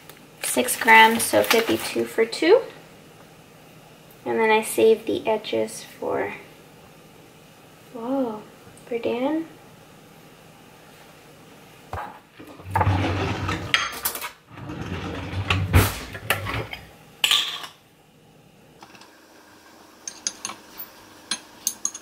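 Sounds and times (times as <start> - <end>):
knife clinking in glass jar: 20.1 - 22.0.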